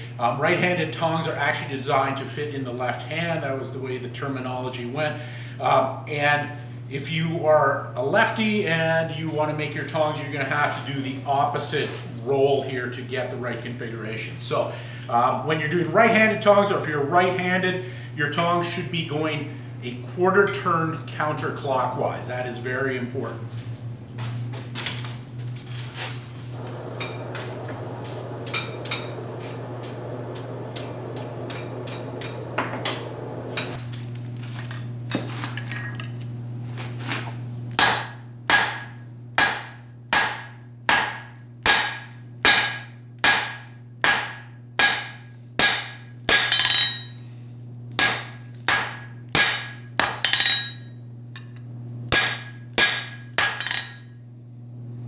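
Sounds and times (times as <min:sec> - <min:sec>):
low steady hum: 0:00.0 - 0:55.0
hammer striking anvil: 0:28.4 - 0:29.7, 0:37.8 - 0:47.2, 0:48.0 - 0:50.8, 0:52.1 - 0:54.0.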